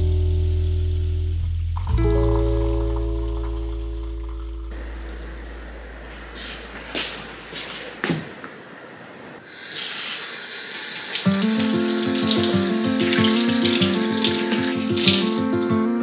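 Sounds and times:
tap water running into metal sink: 9.4s - 15.8s
music with steady beat: 11.3s - 16.0s.

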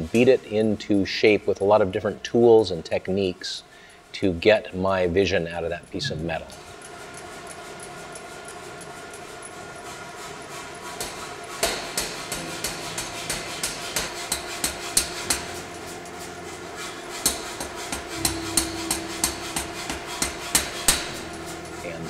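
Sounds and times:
steady hum: 5.8s - 6.8s, 12.6s - 22.0s
power hammer striking hot metal: 11.0s - 15.5s, 17.1s - 21.5s.

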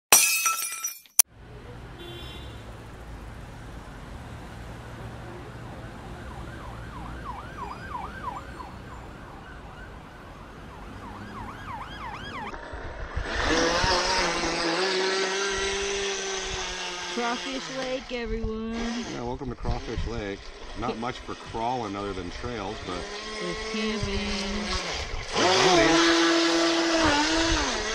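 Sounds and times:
electric motor whine: 11.7s - 18.0s, 22.6s - 27.9s.

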